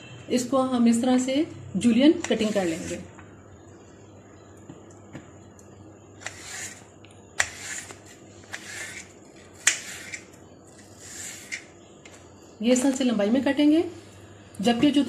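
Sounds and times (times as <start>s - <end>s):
knife slicing apple: 6.2s - 6.8s, 7.4s - 11.7s.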